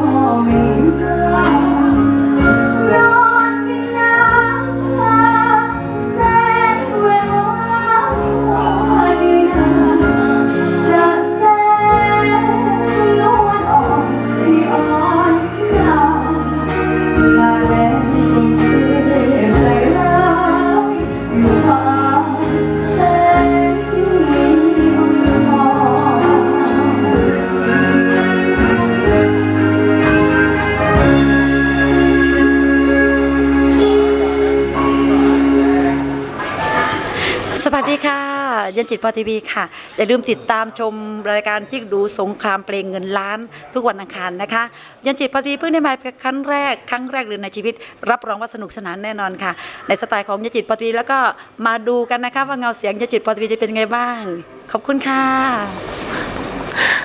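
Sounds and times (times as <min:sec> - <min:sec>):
woman singing into a microphone: 0:00.0 - 0:29.3
backing music with bass line: 0:00.0 - 0:37.6.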